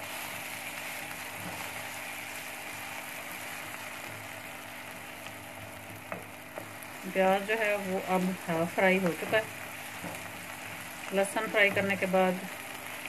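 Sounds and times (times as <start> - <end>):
food sizzling in oil: 0.0 - 13.0
low steady hum: 0.0 - 13.0
spatula stirring in pan: 0.0 - 13.0.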